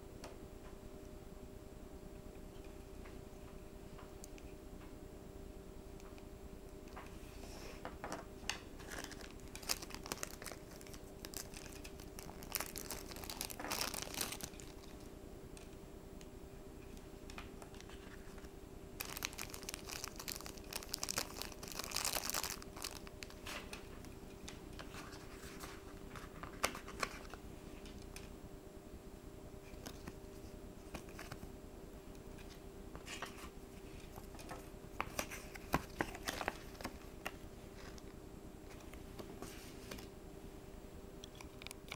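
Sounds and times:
faint steady hum: 0.0 - 41.9
plastic bag crinkling: 8.8 - 15.1, 19.0 - 24.1.

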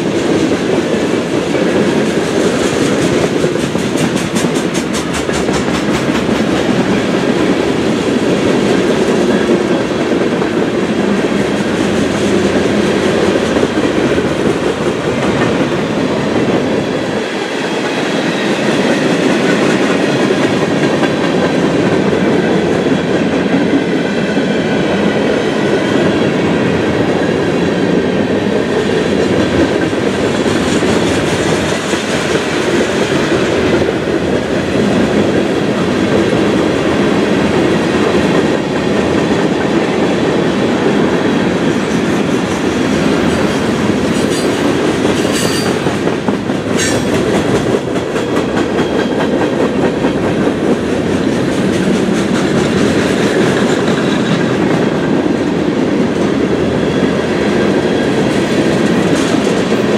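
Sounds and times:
train wheels rumbling on rails: 0.0 - 59.9
wheels clickety-clack: 0.1 - 24.6, 26.6 - 56.8, 57.4 - 59.9
high wheel squeal: 44.1 - 45.8.

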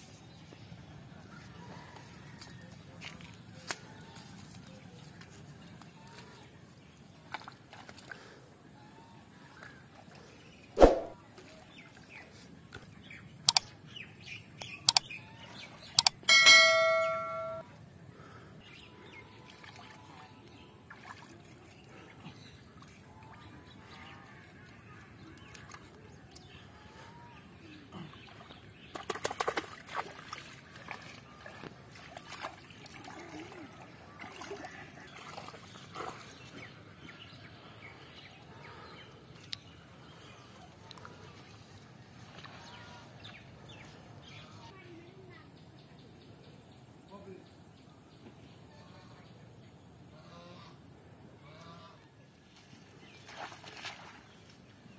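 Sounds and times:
hands splashing in water: 10.8 - 11.2, 53.2 - 54.5
sharp clicks: 13.5 - 13.7, 16.0 - 16.2
bell-like ringing tone: 16.2 - 17.7.

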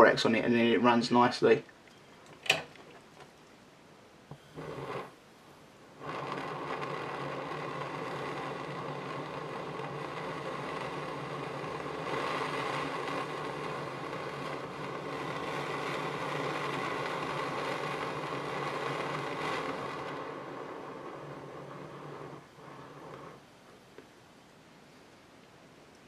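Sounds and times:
gas torch flame hissing: 4.2 - 24.1.

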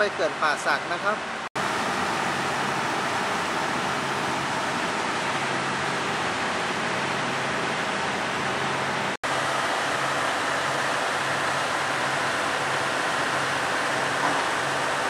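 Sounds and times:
radiator fans running: 0.0 - 15.0
diesel railcars idling: 1.6 - 15.0.

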